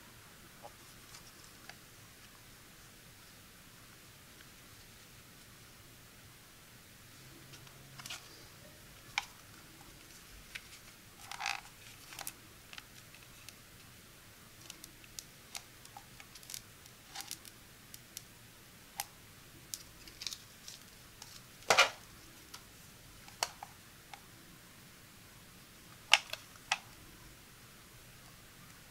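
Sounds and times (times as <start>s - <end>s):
protective film crinkling: 7.5s - 13.9s, 14.6s - 18.3s, 19.7s - 22.7s.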